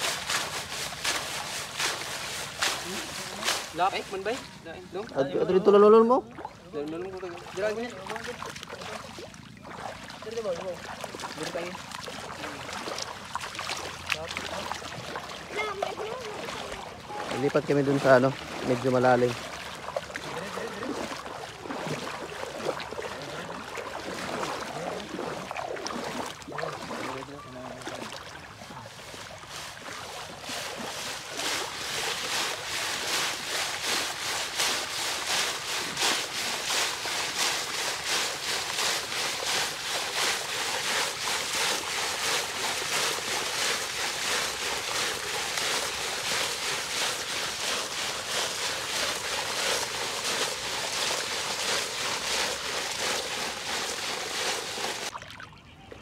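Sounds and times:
net dragged through water: 0.0s - 55.4s
seawater sloshing around legs: 0.0s - 56.0s.

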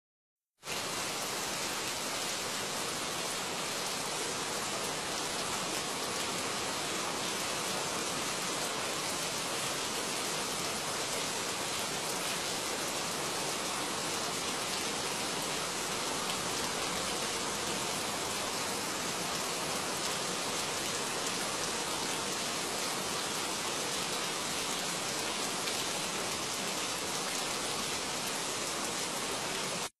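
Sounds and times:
steady hiss of noise: 0.6s - 29.9s.

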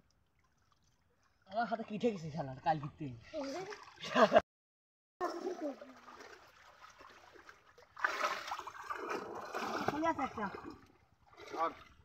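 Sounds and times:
water splashing from wading: 3.4s - 4.4s, 5.2s - 12.0s.

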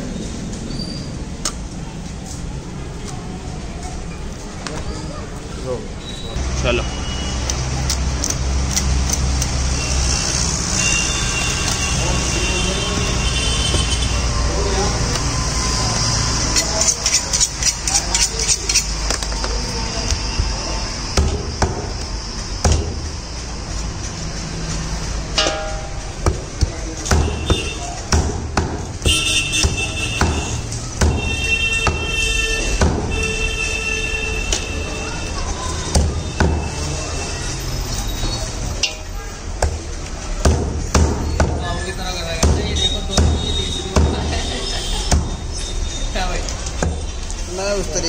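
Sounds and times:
cleaver chopping on wooden block: 26.2s - 32.1s.

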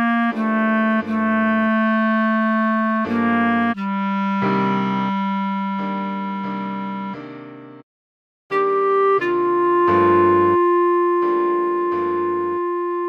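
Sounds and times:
clarinet melody: 0.0s - 7.6s, 8.5s - 13.0s
sustained keyboard chords: 0.0s - 7.8s, 9.2s - 13.0s.

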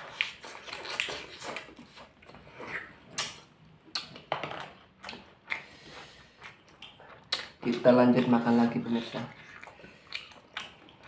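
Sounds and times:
chewing and lip smacks: 0.0s - 11.0s.

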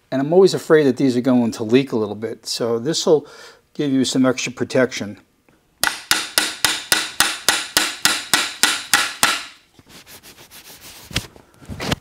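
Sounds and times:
sharp metal tapping: 5.8s - 9.6s.

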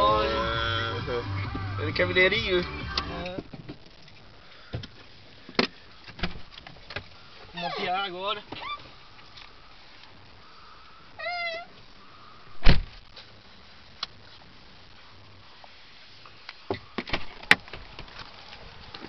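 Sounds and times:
loud thump: 12.6s - 13.0s.

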